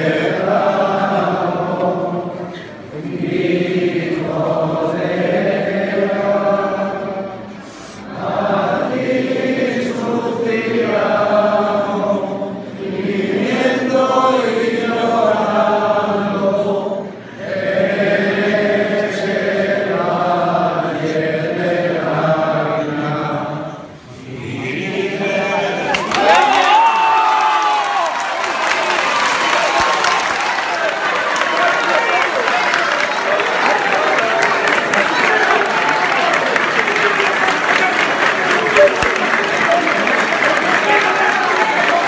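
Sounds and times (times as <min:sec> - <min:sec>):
many voices singing a hymn: 0:00.0 - 0:26.1.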